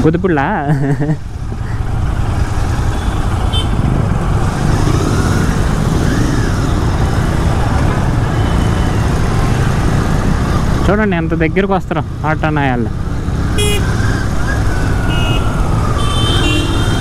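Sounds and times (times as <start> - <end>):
road and traffic noise: 0.0 - 17.0
motorcycle engine running: 1.4 - 7.7.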